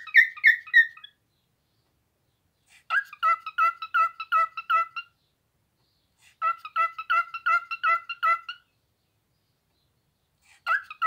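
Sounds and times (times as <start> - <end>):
cockatiel chirping: 0.0 - 1.2, 2.9 - 5.1, 6.4 - 8.6, 10.7 - 11.0.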